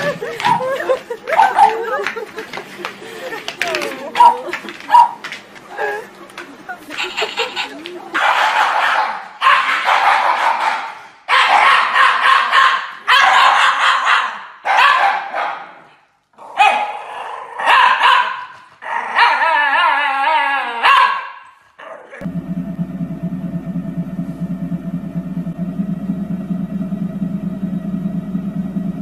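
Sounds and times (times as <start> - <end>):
dogs barking and howling: 0.1 - 2.0, 4.1 - 5.2, 8.2 - 15.7, 16.5 - 22.3
low machine hum: 22.2 - 29.0.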